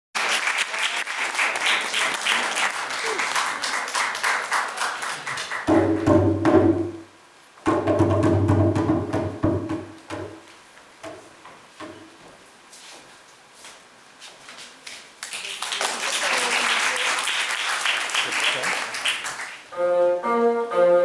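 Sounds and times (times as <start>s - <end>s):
rapid percussion strokes: 5.6s - 10.4s.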